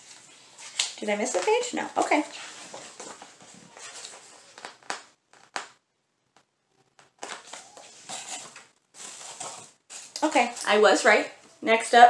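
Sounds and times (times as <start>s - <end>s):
paper rustling: 2.2s - 5.8s, 7.0s - 10.6s.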